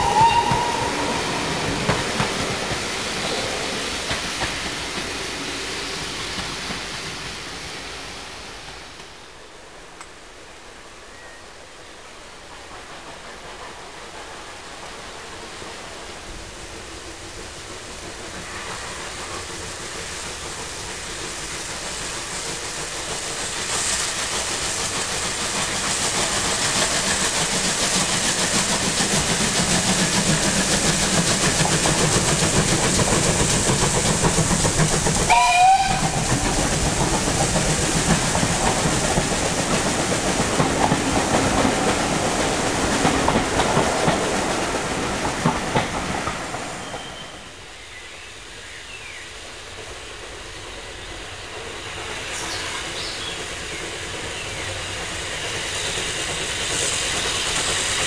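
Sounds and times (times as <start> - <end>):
locomotive whistle: 0.0 - 1.8, 35.3 - 36.3
steam train approaching: 0.0 - 58.0
wheels clickety-clack: 0.4 - 5.4, 17.0 - 47.4, 51.5 - 58.0.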